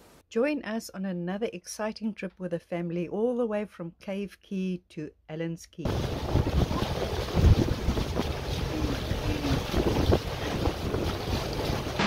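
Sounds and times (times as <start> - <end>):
water rushing along hull: 5.9 - 12.0
wind rumbling on microphone: 5.9 - 12.0.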